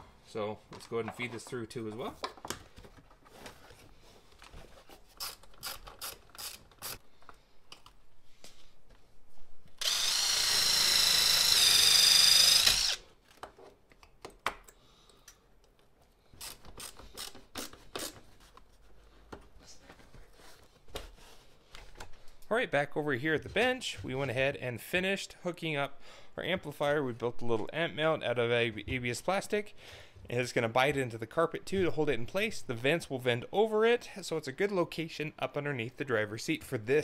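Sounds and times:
impact driver whining: 9.8 - 13.1.

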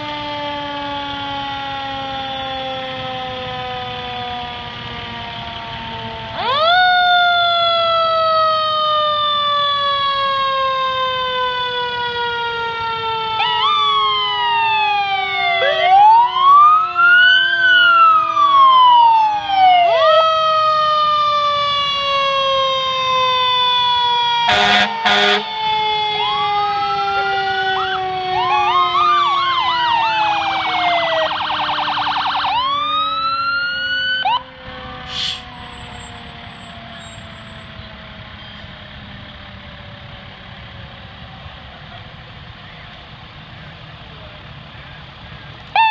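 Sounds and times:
warbling siren yelp: 0.0 - 39.3, 45.3 - 45.9
fire engine sirens: 0.0 - 45.9
air horn blasts: 24.4 - 25.5.

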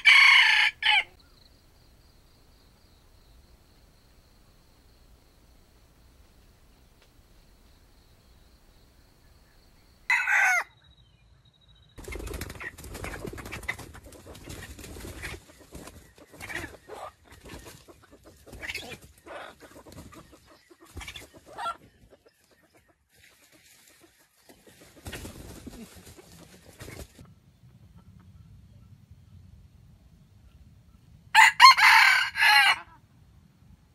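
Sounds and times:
clucks: 12.0 - 28.8.

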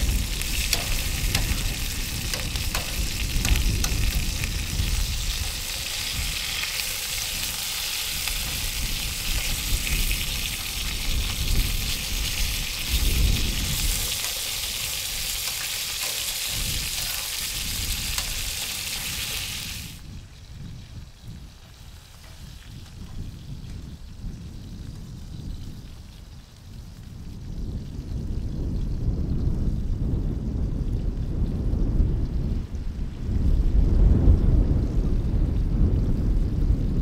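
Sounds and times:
low rumble: 0.0 - 20.2
food sizzling in a frying pan: 0.0 - 29.5
metal tongs clicking on pan: 0.5 - 4.2, 13.8 - 19.1.

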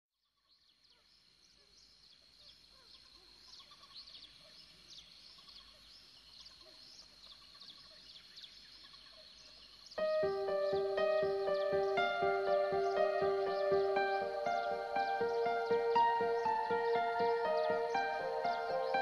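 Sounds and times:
songbirds chirping: 3.0 - 19.0.

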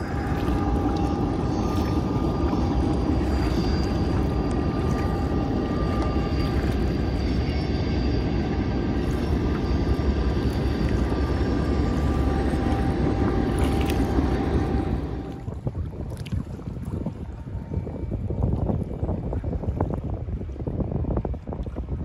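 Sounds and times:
faint distant engine hum: 0.0 - 15.5
canoe paddling in choppy water: 0.0 - 22.0
wind buffeting microphone: 0.0 - 22.0.

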